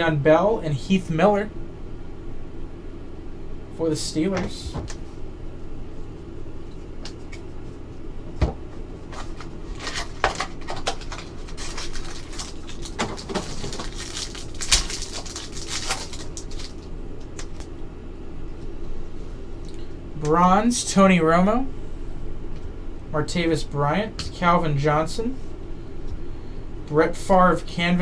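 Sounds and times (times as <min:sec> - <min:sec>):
steady low hum: 0:00.0 - 0:28.0
plastic wrapper crinkling and ripping: 0:09.1 - 0:17.7.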